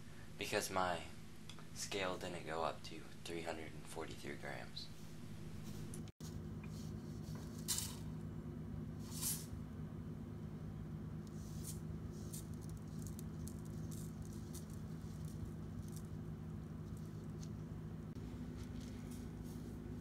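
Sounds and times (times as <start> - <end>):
steady low hum: 0.0 - 20.0
granules poured into plastic cup: 11.5 - 16.1.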